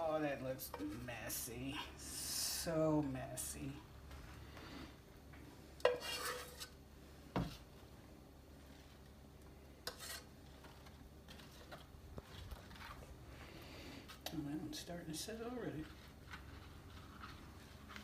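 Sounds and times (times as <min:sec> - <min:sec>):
spoon scraping saucepan: 0:05.8 - 0:06.8, 0:09.8 - 0:11.8.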